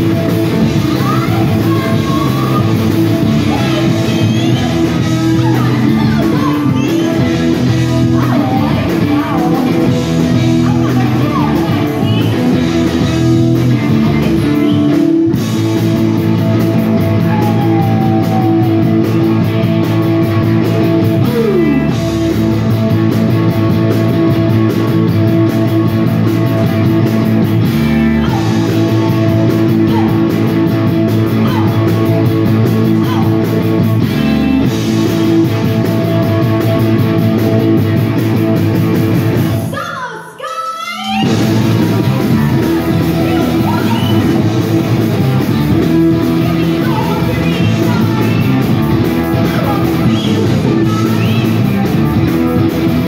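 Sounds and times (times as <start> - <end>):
electric guitar: 0.0 - 39.8, 41.2 - 53.0
drums: 0.0 - 53.0.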